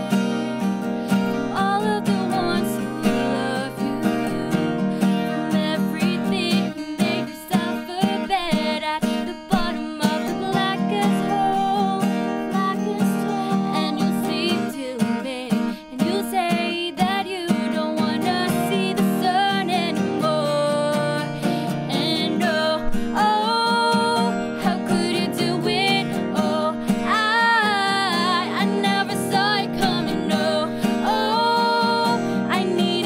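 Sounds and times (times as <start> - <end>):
acoustic guitars: 0.0 - 33.0
women singing together: 1.4 - 12.0, 21.9 - 33.0.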